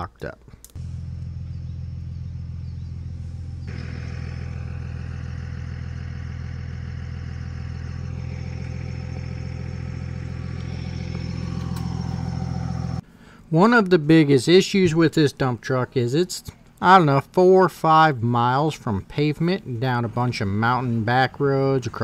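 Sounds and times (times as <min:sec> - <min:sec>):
vehicle engine idling: 0:00.8 - 0:13.0.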